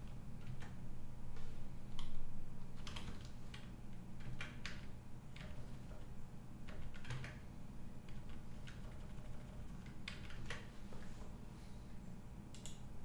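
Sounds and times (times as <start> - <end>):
low steady hum: 0.0 - 13.0
keyboard and mouse clicks: 8.1 - 10.7, 12.5 - 12.9.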